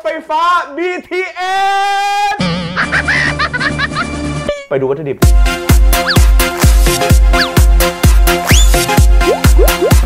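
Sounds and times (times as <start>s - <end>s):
electronic dance music: 5.9s - 10.0s.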